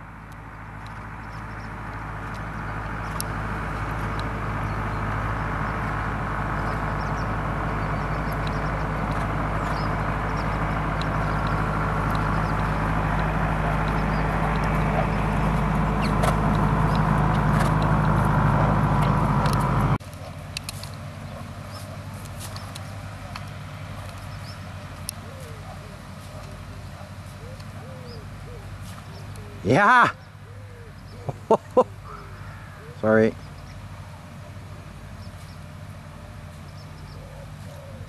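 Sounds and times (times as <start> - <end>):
motor-like hum and rumble: 0.0 - 38.0.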